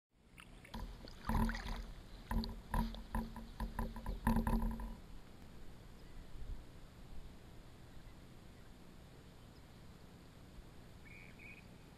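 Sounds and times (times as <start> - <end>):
low ringing hum: 0.2 - 11.9
inflatable kayak thudding: 0.7 - 5.1.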